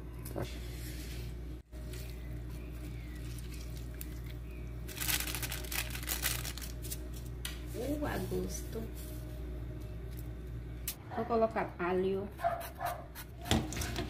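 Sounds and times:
low steady hum: 0.0s - 14.0s
vegetables rustling in metal bowl: 1.8s - 9.4s.

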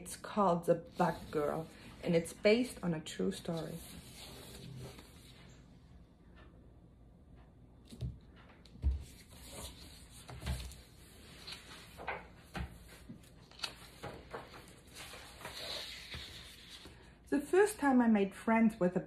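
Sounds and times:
pages rustling: 9.0s - 17.1s.

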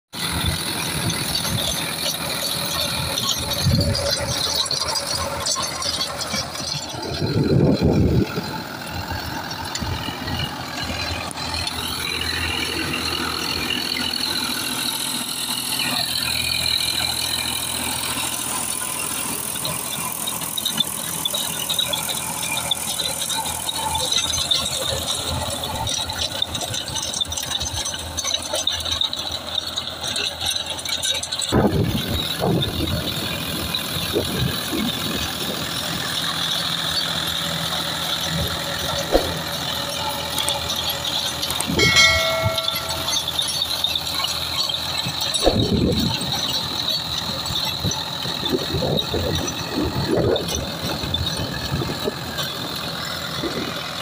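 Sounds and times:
tractor diesel engine under load: 0.0s - 54.0s
mechanical rattle: 0.2s - 54.0s
rotavator churning soil: 0.2s - 54.0s.

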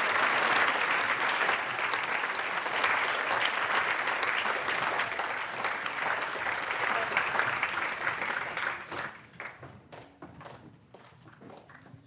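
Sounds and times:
crowd applauding: 0.0s - 9.7s.

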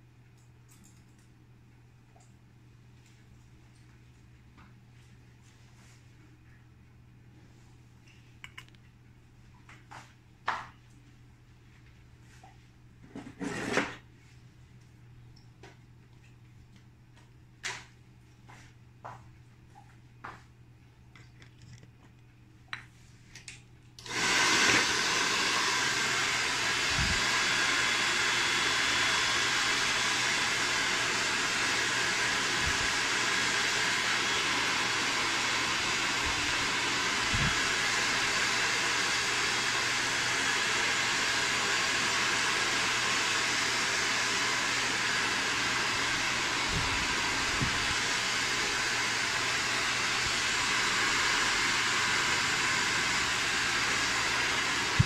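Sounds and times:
hair dryer blowing: 24.0s - 55.0s.

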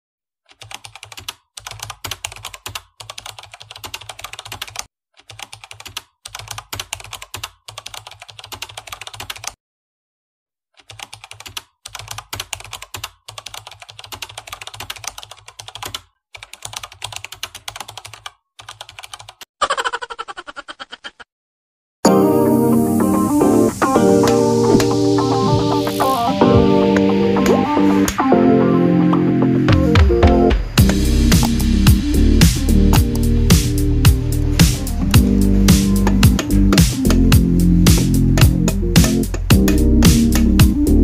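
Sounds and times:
keyboard typing clicks: 34.7s - 40.6s.

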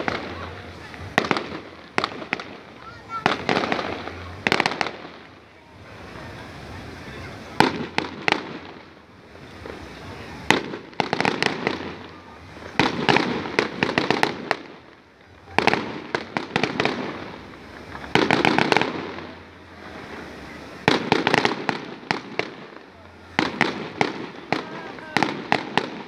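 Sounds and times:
fireworks bursting and crackling: 0.0s - 26.0s.

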